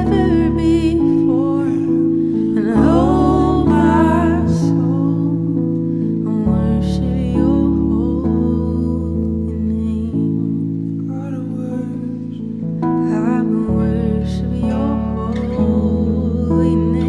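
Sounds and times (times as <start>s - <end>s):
acoustic guitar: 0.0s - 17.0s
piano chords: 0.0s - 17.0s.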